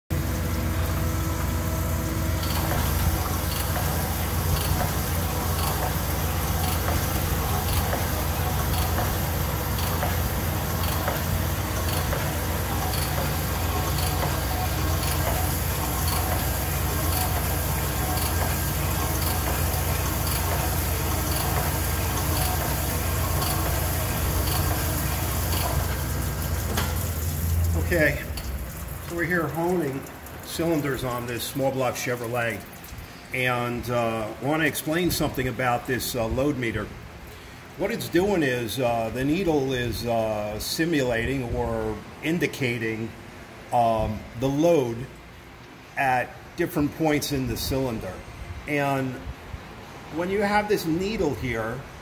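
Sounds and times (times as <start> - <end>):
honing machine motor hum: 0.1 - 29.6
stones grinding in cylinder bore: 0.2 - 29.4
oil pouring: 0.2 - 33.4.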